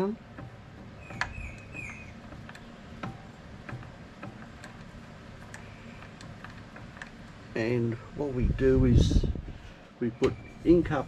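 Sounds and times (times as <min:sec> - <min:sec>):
light metallic clicks and taps: 0:00.0 - 0:07.6.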